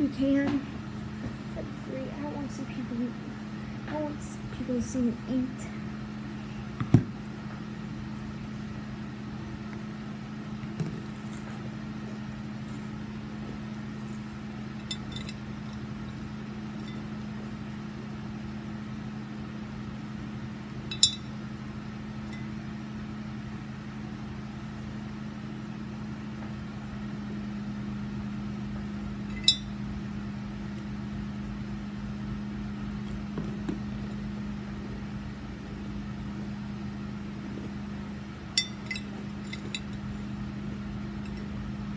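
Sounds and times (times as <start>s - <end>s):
steady low hum: 0.0s - 41.9s
spoon clinking against bowl: 20.9s - 21.3s, 29.3s - 29.7s, 38.6s - 40.0s.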